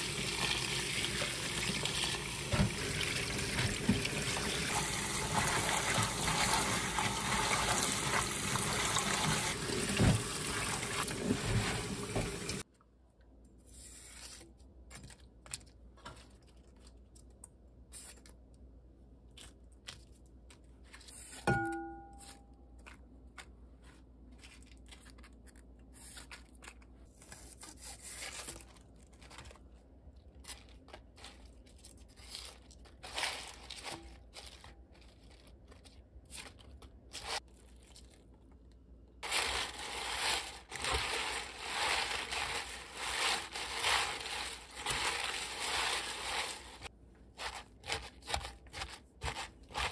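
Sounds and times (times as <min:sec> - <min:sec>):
cabbage leaves crunching: 0:30.4 - 0:38.3, 0:39.2 - 0:49.9.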